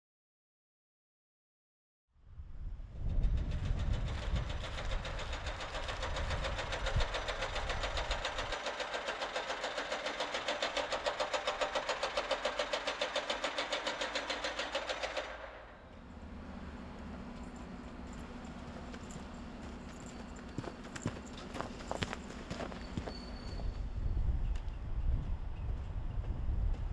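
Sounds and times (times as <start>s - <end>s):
rapid mechanical clattering: 3.0s - 23.0s.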